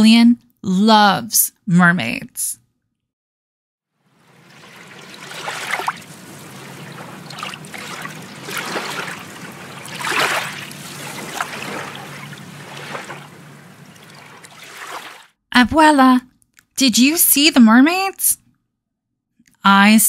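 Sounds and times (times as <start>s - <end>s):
water splashing and sloshing: 4.0s - 15.4s.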